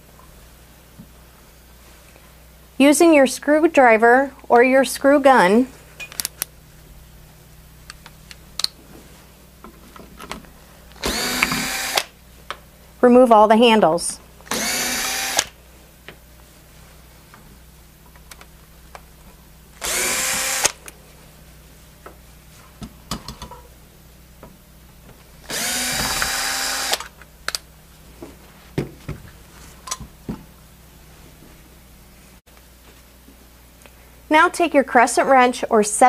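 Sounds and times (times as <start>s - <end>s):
cordless drill spinning: 11.0s - 12.2s, 14.4s - 15.6s, 19.8s - 20.8s, 25.4s - 27.2s.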